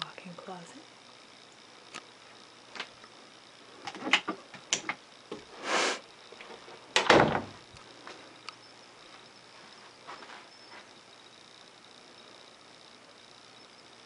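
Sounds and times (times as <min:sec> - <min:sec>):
door shutting thud: 0:07.0 - 0:07.6.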